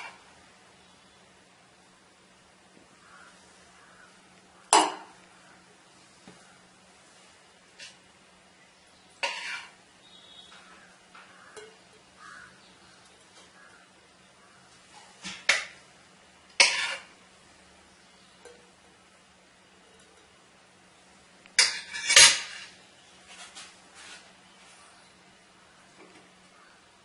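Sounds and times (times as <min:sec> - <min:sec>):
faint steady hum: 0:00.0 - 0:27.0
cookware clattering on a pan: 0:09.2 - 0:09.8, 0:16.6 - 0:17.2, 0:21.6 - 0:22.8.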